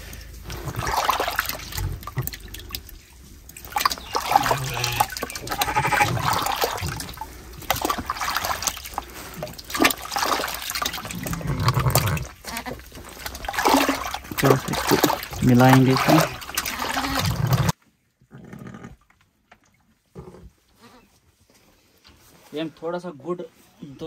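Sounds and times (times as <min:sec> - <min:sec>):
water sloshing in plastic bucket: 0:00.0 - 0:17.8.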